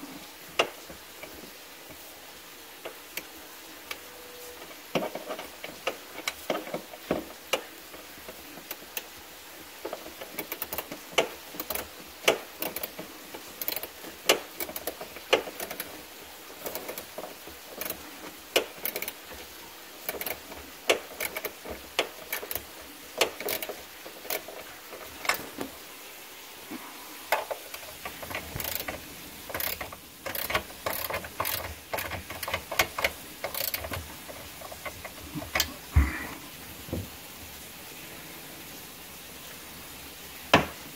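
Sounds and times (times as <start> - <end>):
tools and metal parts clinking: 27.3 - 35.7.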